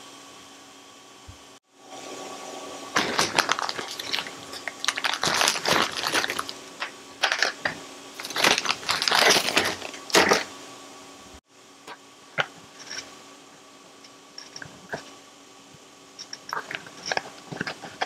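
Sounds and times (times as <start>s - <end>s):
plastic bag crinkling: 3.0s - 10.5s.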